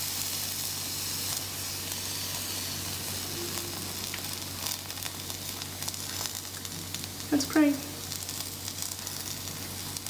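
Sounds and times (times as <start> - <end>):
dough sizzling on a griddle: 0.0 - 10.0
low hum: 1.8 - 6.0.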